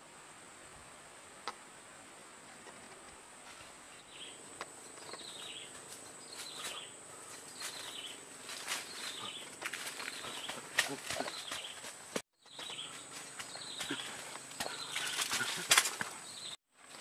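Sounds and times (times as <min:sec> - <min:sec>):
footsteps in leaf litter: 0:05.4 - 0:17.0.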